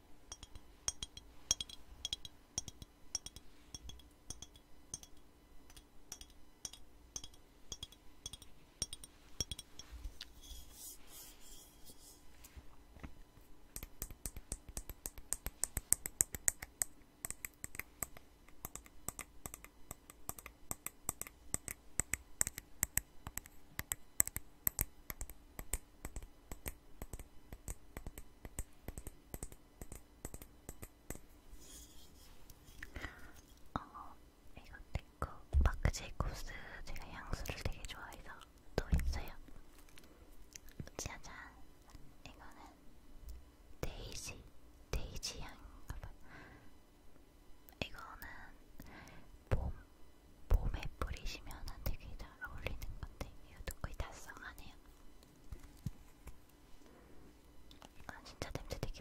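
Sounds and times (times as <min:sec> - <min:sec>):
fingers tapping on glass bottle: 0:00.3 - 0:09.9, 0:13.8 - 0:31.0.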